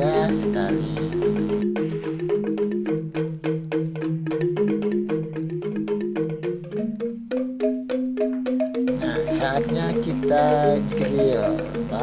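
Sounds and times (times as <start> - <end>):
struck pitched notes: 8.9 - 12.0.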